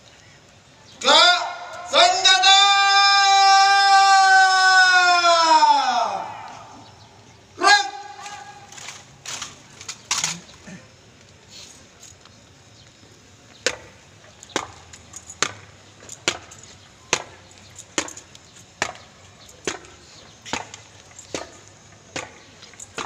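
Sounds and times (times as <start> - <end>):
boots marching on pavement: 12.1 - 23.0.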